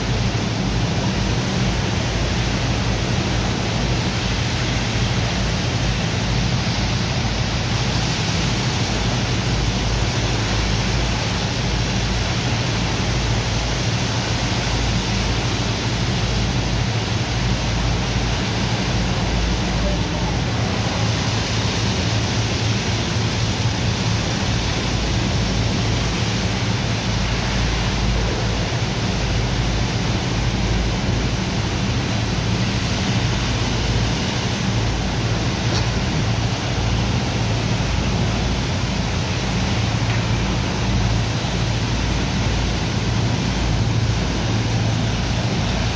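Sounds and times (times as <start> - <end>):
low machine drone: 0.0 - 45.9
water jets spraying onto sand: 0.0 - 45.9.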